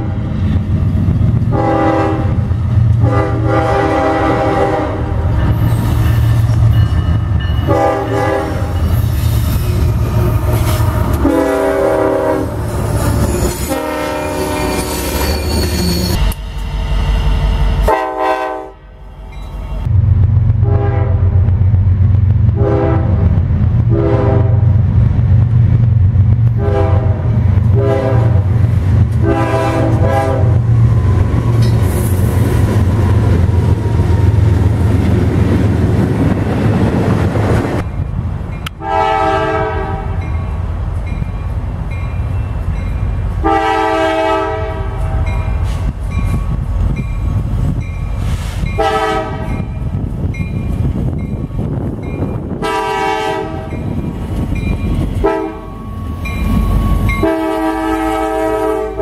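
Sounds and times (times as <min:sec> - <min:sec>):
locomotive engines rumbling: 0:00.0 - 0:59.0
locomotive air horn blasts: 0:01.5 - 0:05.3, 0:07.6 - 0:08.8, 0:09.9 - 0:12.6, 0:13.6 - 0:15.2, 0:17.8 - 0:18.9, 0:20.6 - 0:21.5, 0:22.6 - 0:23.3, 0:23.9 - 0:24.8, 0:26.6 - 0:28.5, 0:29.2 - 0:30.7, 0:38.8 - 0:40.3, 0:43.4 - 0:45.4, 0:48.7 - 0:49.6, 0:52.6 - 0:53.8, 0:55.0 - 0:55.9, 0:56.6 - 0:59.0.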